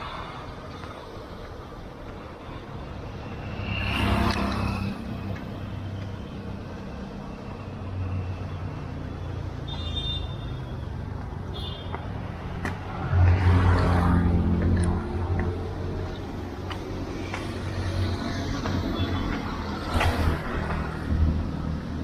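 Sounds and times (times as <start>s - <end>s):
street traffic hum: 0.0s - 22.0s
vehicle passing: 2.5s - 5.5s, 12.2s - 21.4s.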